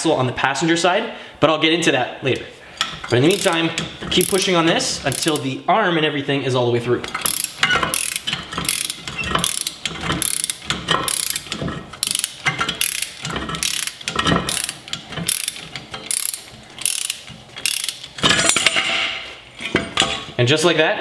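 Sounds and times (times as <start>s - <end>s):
hand ratchet clicking: 2.8s - 5.5s, 7.0s - 18.6s.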